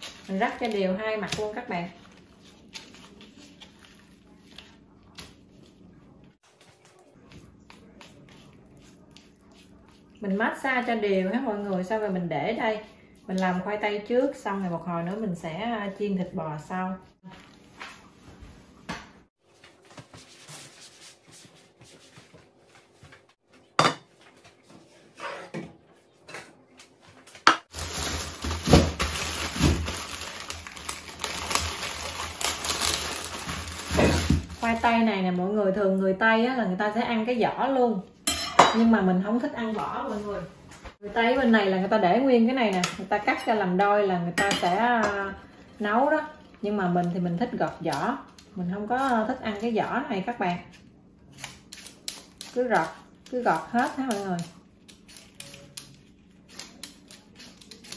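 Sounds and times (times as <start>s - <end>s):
knife slitting plastic bag: 0.0s - 4.8s, 27.7s - 34.9s
brush spreading oil: 6.6s - 10.4s, 19.9s - 22.4s
plastic bag clatter and rustle: 27.7s - 34.8s.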